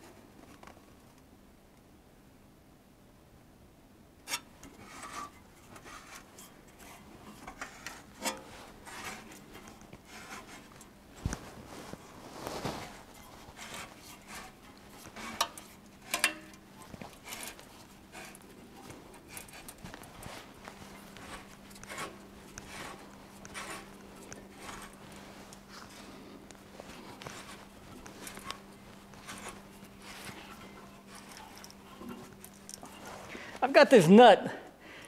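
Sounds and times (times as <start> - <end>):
metal scraping on metal: 4.3 - 10.9, 11.7 - 33.3
sharp metal clicks and knocks: 13.6 - 20.1.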